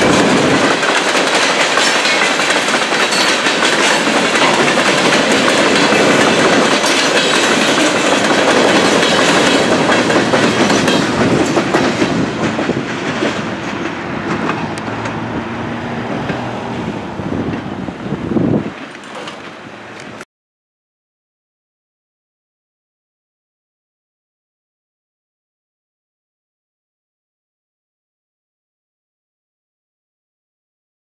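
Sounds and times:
train wheels clattering on rails: 0.0 - 17.8, 18.6 - 20.2
crossing bell ringing: 1.4 - 11.6.

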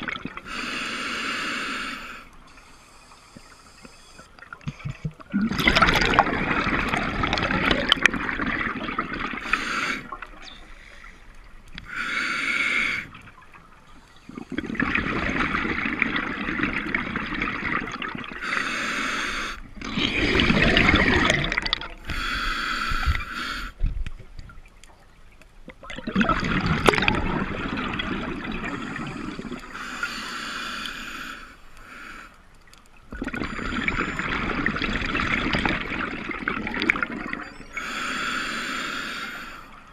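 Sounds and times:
hissing regulator inhalations: 0.4 - 4.3, 9.4 - 11.2, 11.8 - 13.1, 18.4 - 19.7, 22.0 - 23.8, 28.8 - 32.4, 37.6 - 39.9
bubbling exhalations: 4.7 - 10.7, 19.8 - 22.3, 25.8 - 29.8, 33.1 - 38.0.

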